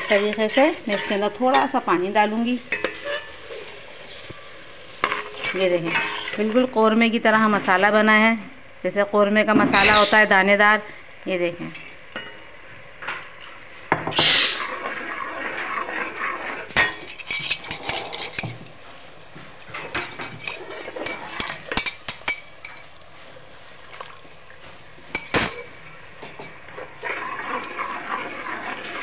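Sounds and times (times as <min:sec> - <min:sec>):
spoon scraping a pot: 0:00.0 - 0:06.7, 0:14.0 - 0:18.8, 0:19.7 - 0:23.8, 0:25.0 - 0:29.0
oil sizzling: 0:00.0 - 0:07.0, 0:12.0 - 0:29.0.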